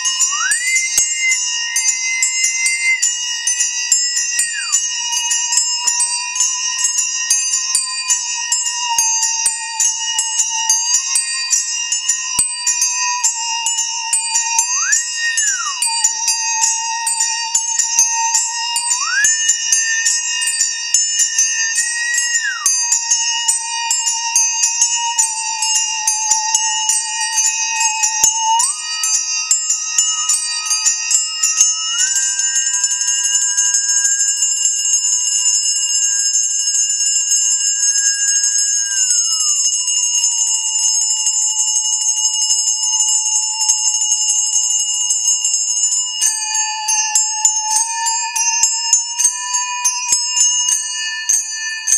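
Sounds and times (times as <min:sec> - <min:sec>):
musical saw singing tone: 0:00.0 - 0:05.6, 0:13.9 - 0:24.3
handbells ringing: 0:00.0 - 0:51.9.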